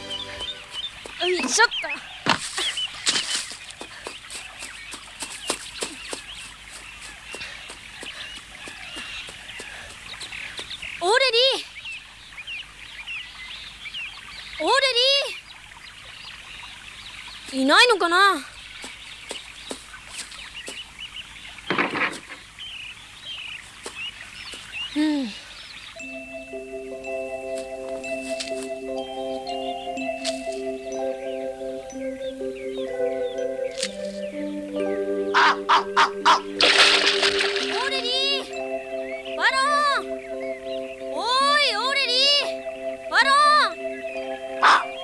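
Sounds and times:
gentle mallet music: 0.0 - 1.6, 26.0 - 45.0
running footsteps: 0.0 - 11.0, 18.8 - 21.0, 23.6 - 24.8, 27.4 - 28.9
birds chirping: 0.0 - 45.0.

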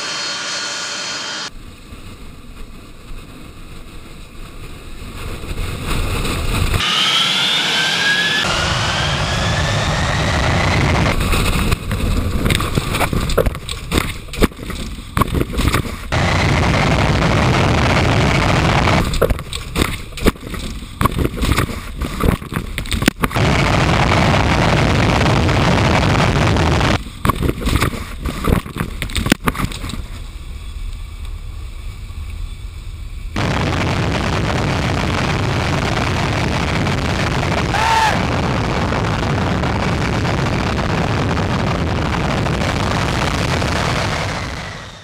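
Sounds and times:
jet blast rushing: 0.0 - 1.5, 6.6 - 12.3, 15.9 - 19.8, 33.4 - 45.0.

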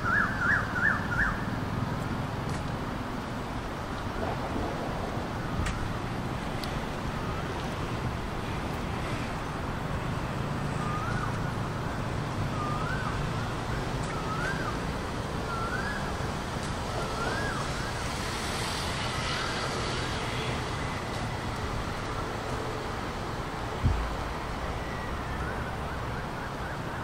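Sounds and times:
city traffic rumble: 0.0 - 27.0
whistled call: 12.5 - 13.2, 14.0 - 14.8, 15.4 - 16.1, 17.0 - 18.0.

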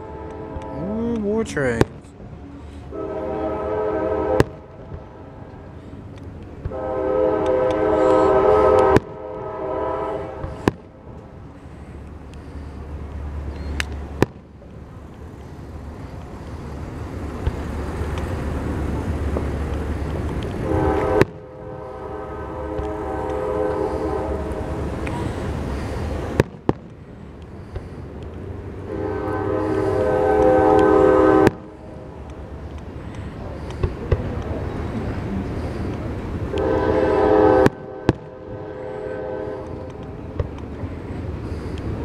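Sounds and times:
train horn chord: 0.0 - 1.2, 2.9 - 5.5, 6.7 - 10.6, 20.6 - 25.1, 28.8 - 32.2, 36.5 - 40.1
fireworks bangs: 4.2 - 5.1, 8.6 - 9.4, 10.4 - 11.0, 29.0 - 31.8, 33.5 - 34.5, 36.5 - 40.6.

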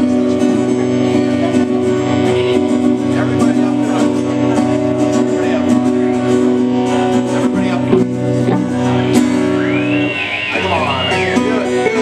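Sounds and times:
electric guitar chords: 0.0 - 12.0
live rock band playing: 0.0 - 12.0
drum and cymbal hits: 7.6 - 9.4.

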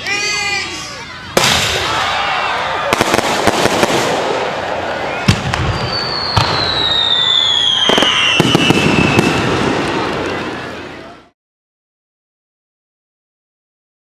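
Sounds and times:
fireworks bangs: 1.3 - 11.2
firework whistle: 2.9 - 11.0.

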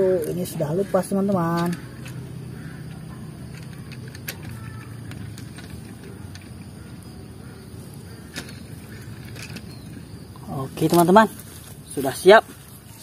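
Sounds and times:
plastic train cars clicking: 0.0 - 11.3
toy train motor whirring: 0.2 - 7.1.

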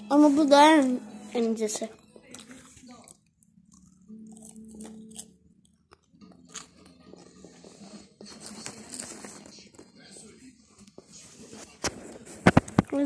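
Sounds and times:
chewing and crunching snack: 2.3 - 9.9.

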